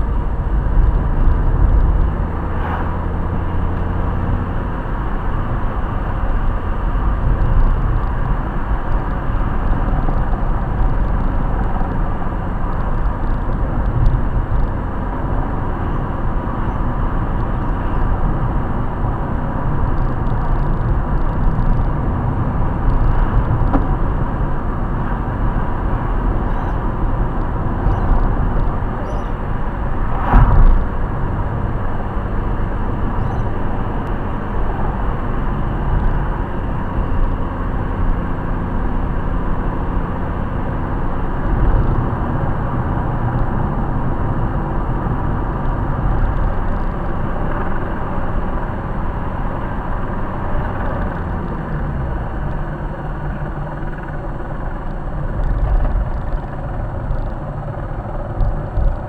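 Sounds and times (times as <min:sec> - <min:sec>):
car engine and tyre noise: 0:00.0 - 0:59.0
loud thump: 0:30.1 - 0:31.0.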